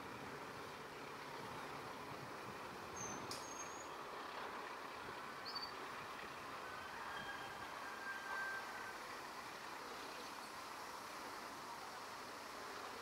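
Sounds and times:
faint rural background noise: 0:00.0 - 0:13.0
high bird chirps: 0:03.0 - 0:04.0, 0:05.4 - 0:05.8
light click: 0:03.3 - 0:03.6.

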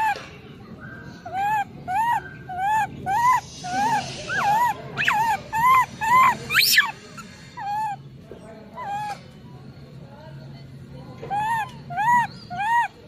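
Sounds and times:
infant monkey crying: 0:00.0 - 0:00.2, 0:01.2 - 0:08.1, 0:08.8 - 0:09.2, 0:11.2 - 0:13.0.

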